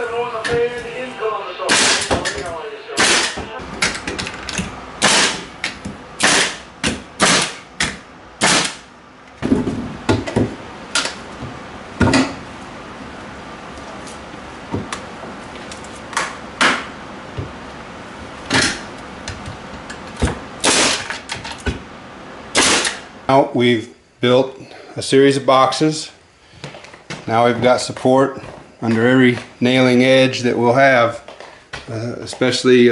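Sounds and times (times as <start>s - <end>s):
nail gun firing into wood: 1.7s - 2.2s, 3.0s - 3.4s, 5.0s - 5.5s, 6.2s - 6.6s, 7.2s - 8.8s, 20.6s - 21.2s, 22.6s - 23.0s.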